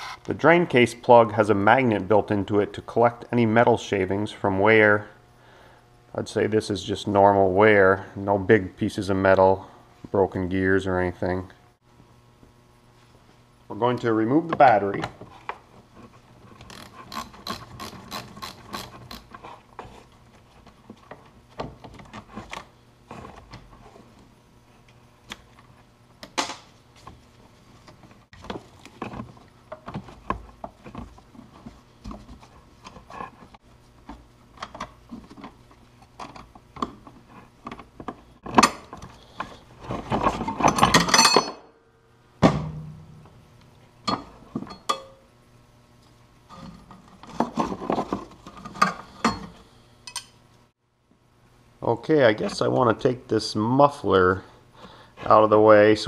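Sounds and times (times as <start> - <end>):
tools clinking and knocking: 44.1 - 45.2.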